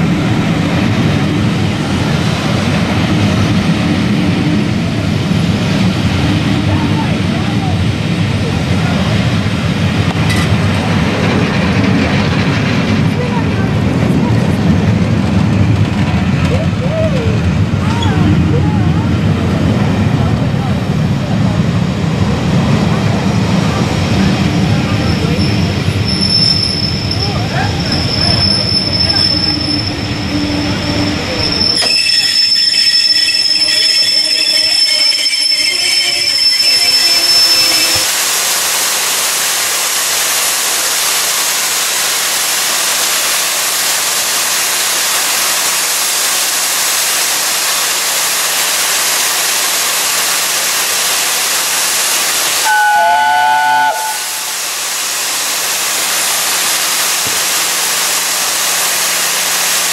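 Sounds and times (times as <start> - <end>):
train wheel and brake squeal: 24.6 - 38.1, 52.6 - 54.5
hiss of escaping steam: 25.5 - 59.9
steam whistle blast: 52.6 - 54.6.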